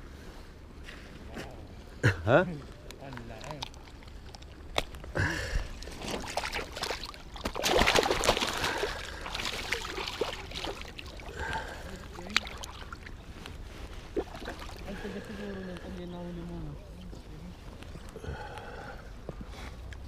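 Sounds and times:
river water running and trickling: 2.6s - 18.2s.

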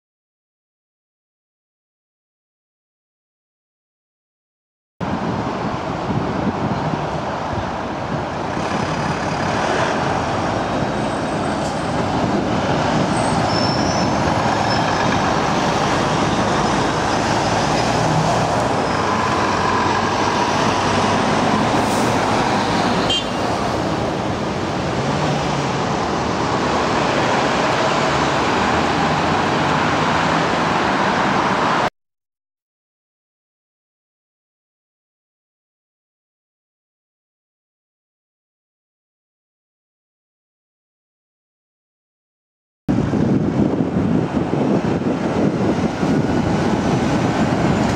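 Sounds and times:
trucks and cars passing: 5.0s - 31.9s, 42.9s - 47.9s.

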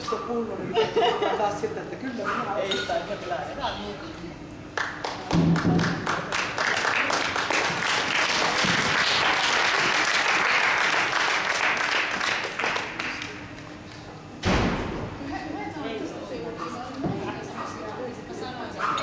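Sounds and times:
small crowd clapping: 4.7s - 13.8s.

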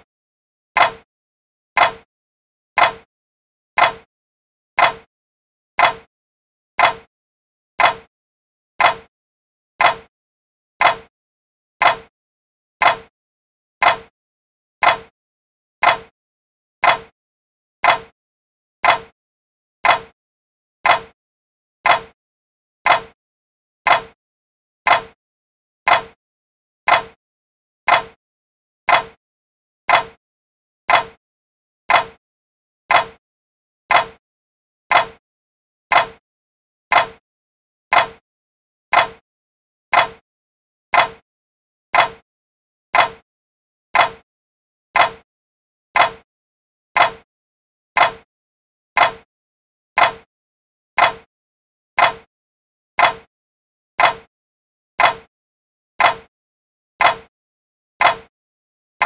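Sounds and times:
clock ticking: 0.8s - 1.0s, 1.8s - 2.1s, 2.8s - 3.1s, 3.8s - 4.1s, 4.8s - 5.1s, 5.8s - 6.1s, 6.8s - 7.1s, 7.8s - 8.1s, 8.8s - 9.1s, 9.8s - 10.1s, 10.8s - 11.1s, 11.8s - 12.1s, 12.8s - 13.1s, 13.8s - 14.1s, 14.8s - 15.1s, 15.8s - 16.1s, 16.8s - 17.1s, 17.8s - 18.1s, 18.8s - 19.2s, 19.8s - 20.2s, 20.8s - 21.2s, 21.8s - 22.2s, 22.8s - 23.2s, 23.9s - 24.2s, 24.9s - 25.2s, 25.9s - 26.2s, 26.9s - 27.2s, 27.9s - 28.2s, 28.9s - 29.2s, 29.9s - 30.2s, 30.9s - 31.2s, 31.9s - 32.2s, 32.9s - 33.2s, 33.9s - 34.2s, 34.9s - 35.2s, 35.9s - 36.2s, 36.9s - 37.2s, 37.9s - 38.2s, 38.9s - 39.2s, 39.9s - 40.2s, 40.9s - 41.2s, 42.0s - 42.2s, 43.0s - 43.2s, 44.0s - 44.2s, 45.0s - 45.2s, 46.0s - 46.3s, 47.0s - 47.3s, 48.0s - 48.3s, 49.0s - 49.3s, 50.0s - 50.3s, 51.0s - 51.3s, 52.0s - 52.3s, 53.0s - 53.3s, 54.0s - 54.3s, 55.0s - 55.3s, 56.0s - 56.3s, 57.0s - 57.3s, 58.0s - 58.3s.

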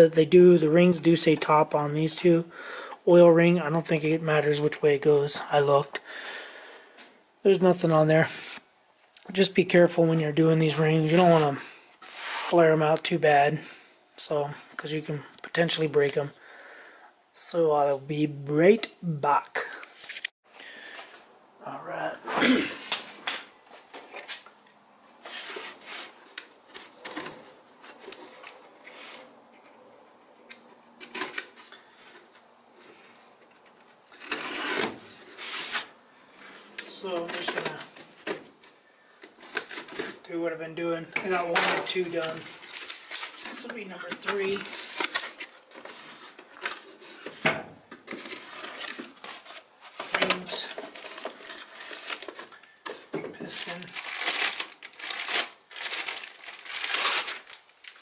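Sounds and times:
cardboard box and paper rustling: 36.8s - 38.6s, 41.3s - 58.0s.

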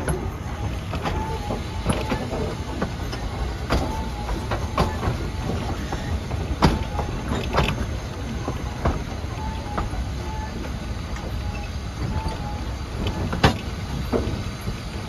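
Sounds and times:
train wheels rumbling: 0.0s - 15.0s.

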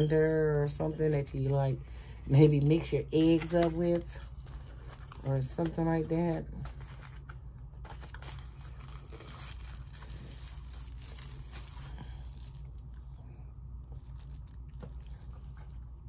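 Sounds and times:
steady low hum: 0.0s - 16.0s
plastic wrapping crinkling: 2.7s - 16.0s.

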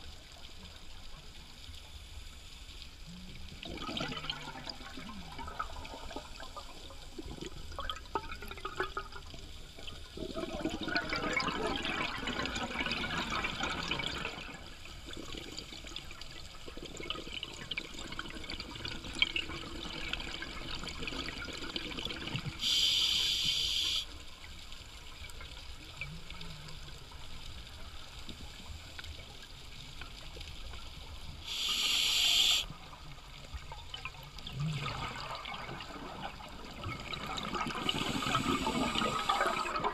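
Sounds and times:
exhaled air bubbles gurgling: 3.0s - 23.9s, 25.2s - 39.9s
regulator hissing: 22.6s - 24.1s, 31.5s - 32.7s.

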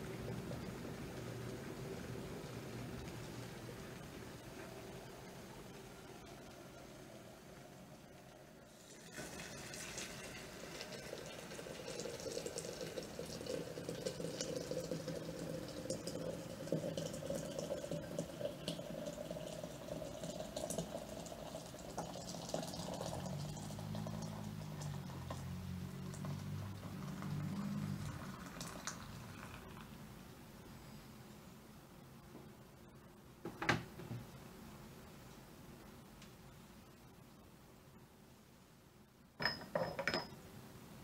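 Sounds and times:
water pouring into teapot: 0.0s - 29.9s.

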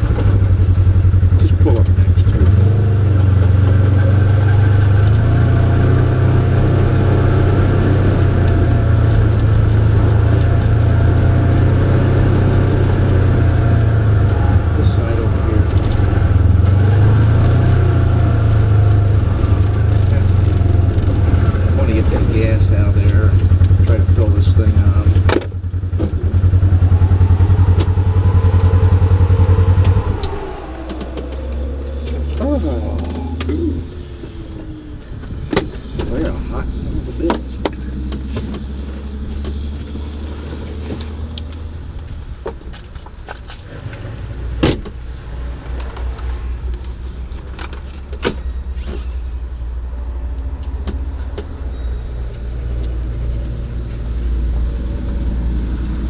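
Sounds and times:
low hum: 0.0s - 38.1s
vehicle engine droning: 0.0s - 56.0s.

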